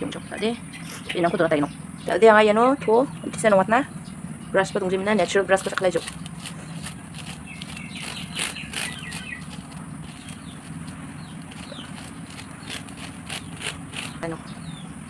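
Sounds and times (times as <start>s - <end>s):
low steady hum: 0.0s - 15.0s
leaves rustling on grill grate: 4.6s - 14.4s.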